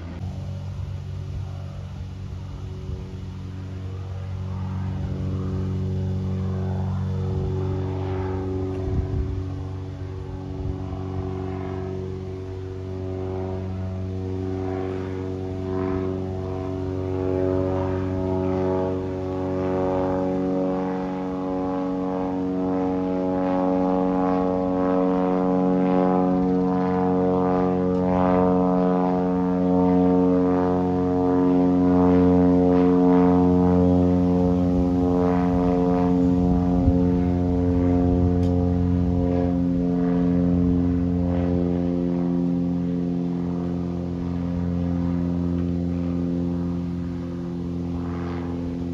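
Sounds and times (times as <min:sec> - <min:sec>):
propeller plane droning overhead: 0:00.0 - 0:48.9.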